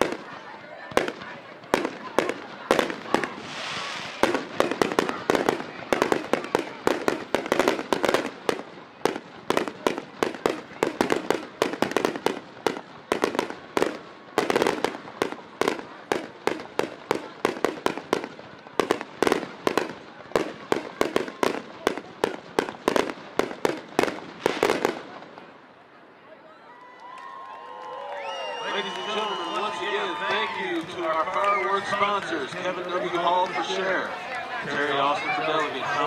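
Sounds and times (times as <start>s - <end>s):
fireworks bangs and pops: 0.0s - 25.6s, 28.8s - 36.0s.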